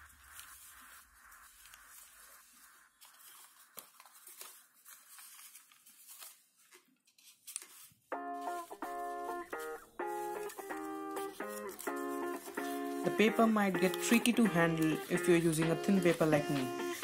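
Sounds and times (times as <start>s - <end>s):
paper rustling and crackling: 0.0s - 17.0s
plucked guitar music: 8.2s - 17.0s.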